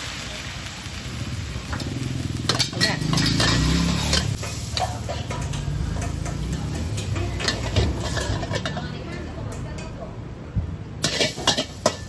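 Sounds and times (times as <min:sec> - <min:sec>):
metal spatula scraping wok: 0:01.6 - 0:10.0, 0:11.0 - 0:12.0.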